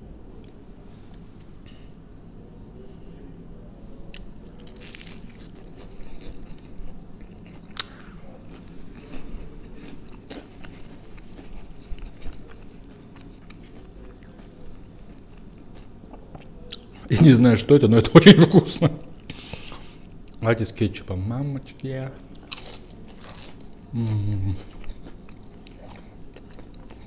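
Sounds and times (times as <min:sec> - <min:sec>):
person chewing crisp snack: 0:04.1 - 0:17.0, 0:22.2 - 0:27.0.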